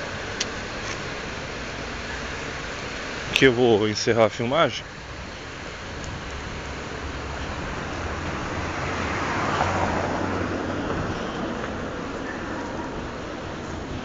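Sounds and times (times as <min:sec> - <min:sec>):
street traffic: 0:00.0 - 0:14.0
vehicle passing: 0:00.0 - 0:14.0.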